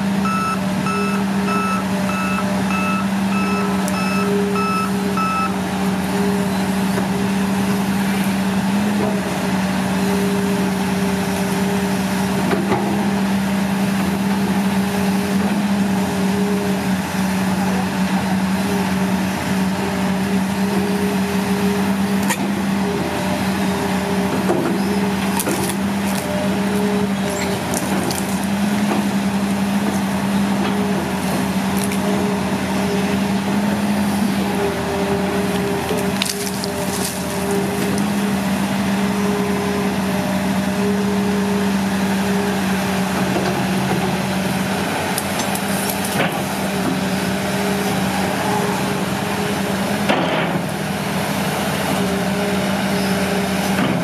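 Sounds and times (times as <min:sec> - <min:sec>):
excavator diesel engine running: 0:00.0 - 0:54.0
travel alarm beeping: 0:00.2 - 0:05.6
roots cracking: 0:27.6 - 0:28.6, 0:35.5 - 0:38.1.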